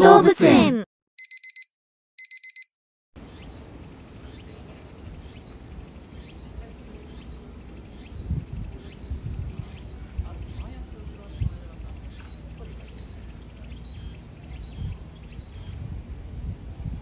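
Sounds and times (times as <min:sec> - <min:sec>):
quick electronic beeps: 0:01.2 - 0:02.7
faint high chirps: 0:03.2 - 0:17.0
outdoor background rumble: 0:03.2 - 0:17.0.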